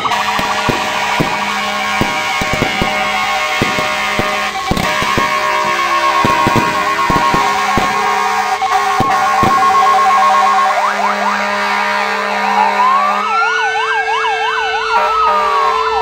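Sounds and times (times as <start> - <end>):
firecrackers banging and crackling: 0.0 - 12.3
fire engine sirens: 0.0 - 16.0.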